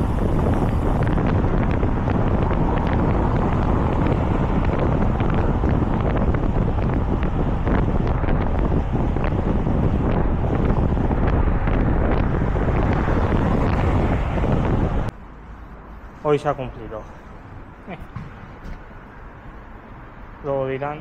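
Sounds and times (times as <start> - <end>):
wind buffeting microphone: 0.0 - 15.2.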